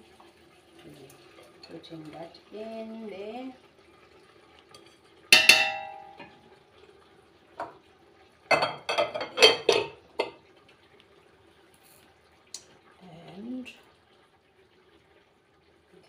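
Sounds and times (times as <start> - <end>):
metal pot clanging: 4.7 - 6.4, 8.5 - 10.4
pots and utensil clattering knocks: 4.8 - 6.4, 7.6 - 7.8, 8.5 - 10.4.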